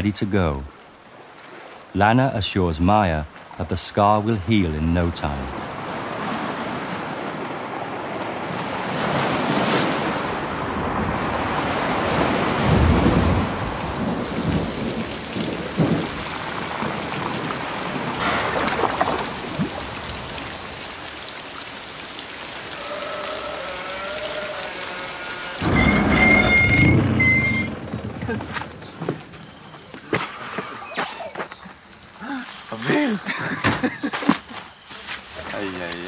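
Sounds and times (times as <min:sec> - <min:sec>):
wind: 0:00.0 - 0:36.0
rain falling on water: 0:10.0 - 0:28.8
low rumbles of thunder: 0:12.0 - 0:20.3.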